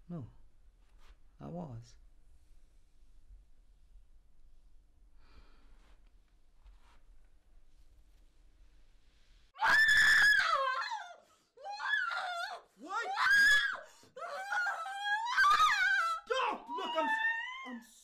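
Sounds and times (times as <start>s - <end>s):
woman screaming: 9.6s - 17.9s.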